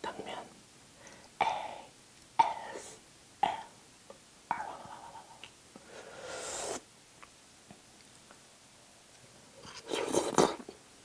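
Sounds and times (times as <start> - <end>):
woman whispering: 0.0 - 0.5, 1.4 - 3.8, 4.5 - 5.4
breathy mouth sounds: 1.1 - 3.8.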